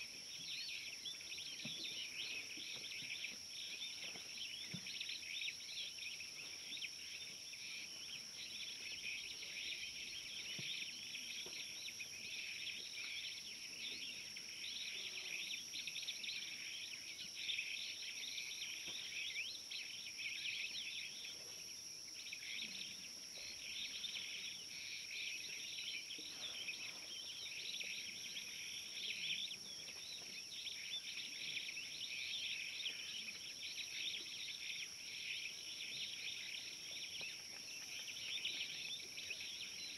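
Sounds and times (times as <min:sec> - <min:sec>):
insects chirring: 0:00.2 - 0:39.9.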